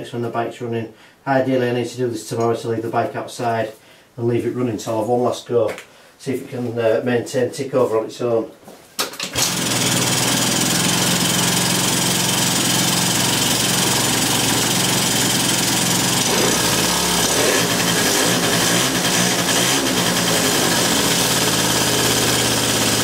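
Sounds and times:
scooter engine idling: 9.3 - 23.0.

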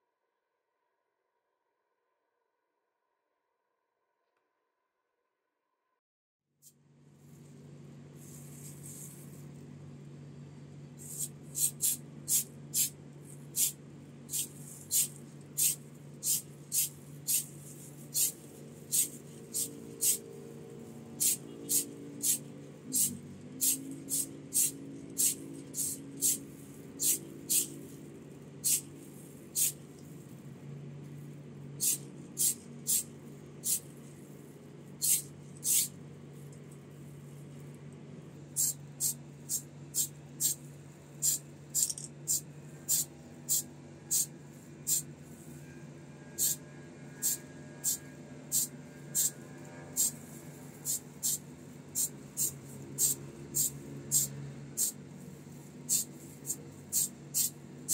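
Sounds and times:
aerosol spray can hissing: 11.0 - 20.2, 21.2 - 27.8, 28.6 - 28.9, 29.6 - 29.8, 31.8 - 33.9, 35.0 - 35.9, 38.6 - 40.6, 41.2 - 44.3, 46.4 - 46.6, 47.2 - 49.3, 50.0 - 50.2, 50.8 - 55.0, 55.9 - 57.9.

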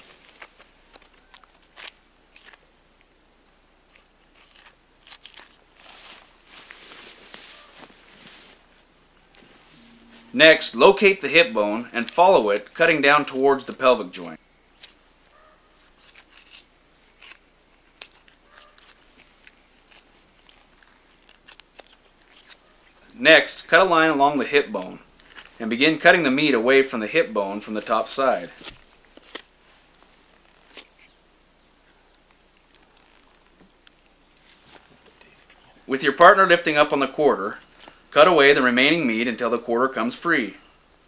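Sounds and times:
crisp crunches and clicks: 0.0 - 3.2, 3.8 - 9.6, 12.0 - 23.1, 24.4 - 26.6, 27.7 - 31.2, 32.1 - 35.9.

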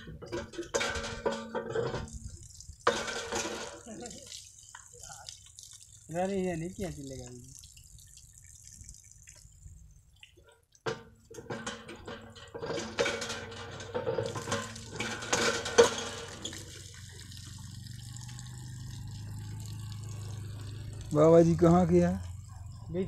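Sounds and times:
pump handle knocks: 0.0 - 2.2, 10.8 - 16.5
water splashing and gushing: 0.0 - 23.0.

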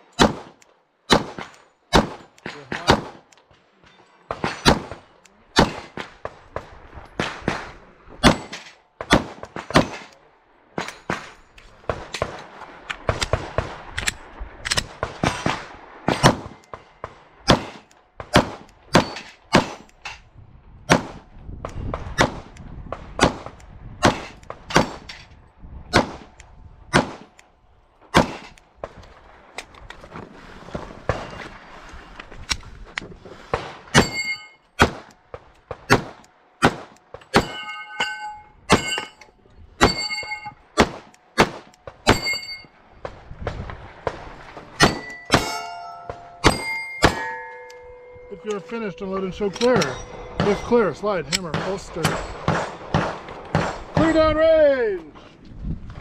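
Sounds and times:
pistol shots: 0.2 - 3.3, 4.3 - 6.6, 7.2 - 10.2, 14.7 - 19.9, 25.9 - 27.4, 28.1 - 28.6, 34.8 - 37.6, 40.8 - 42.4, 43.5 - 47.5, 49.7 - 54.3.

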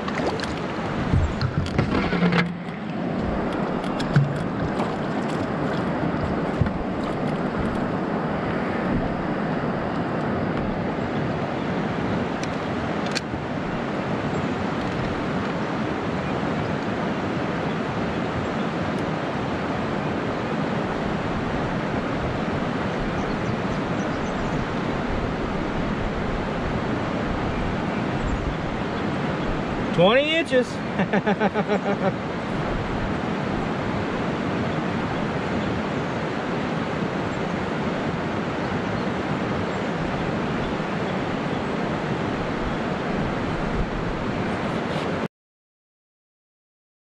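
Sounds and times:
river water rushing over riffles: 0.0 - 45.3
knocking: 1.1 - 2.8.

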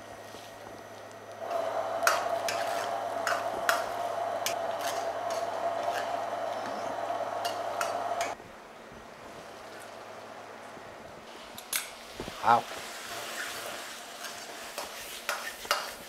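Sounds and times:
gas burner rushing: 0.0 - 8.4
sauce sizzling: 1.4 - 8.4, 12.7 - 16.0.

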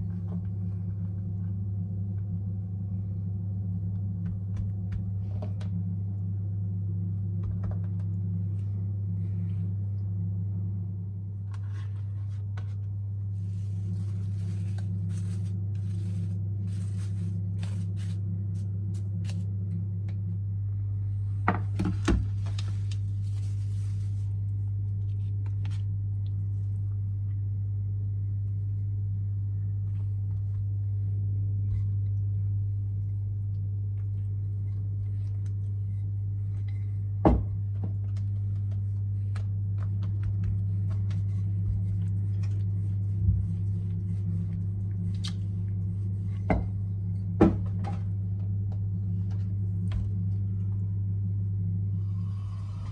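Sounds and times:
steady low hum: 0.0 - 52.9
knocks on kitchen counter: 37.2 - 37.5.

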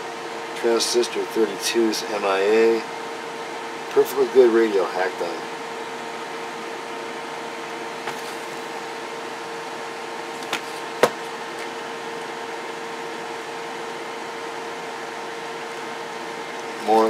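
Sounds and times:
fan-like hum: 0.0 - 17.0.

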